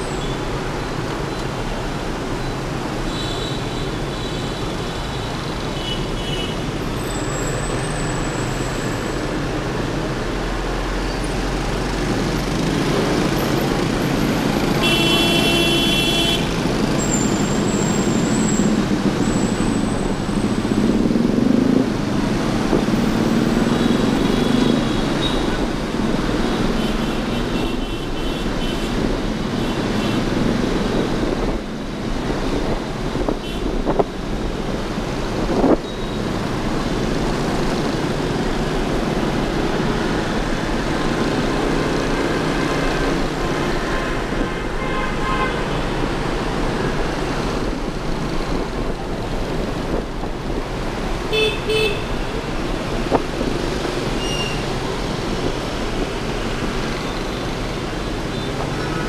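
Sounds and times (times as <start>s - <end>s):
motorbike road and engine noise: 0.0s - 59.0s
vehicle horn honking: 14.8s - 16.5s, 44.6s - 45.8s, 51.3s - 52.2s.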